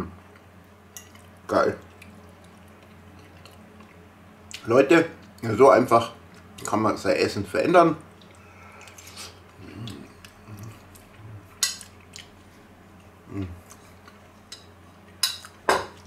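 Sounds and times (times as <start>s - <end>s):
man chewing food: 0.2s - 4.6s, 8.1s - 16.0s
low murmurs: 13.2s - 13.6s.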